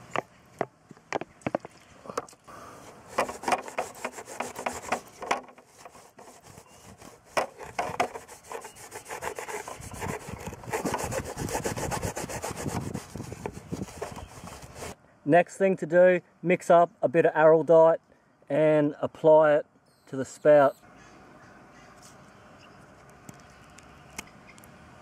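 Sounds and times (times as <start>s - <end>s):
cloth rubbing on plastic tank: 2.8s - 15.0s.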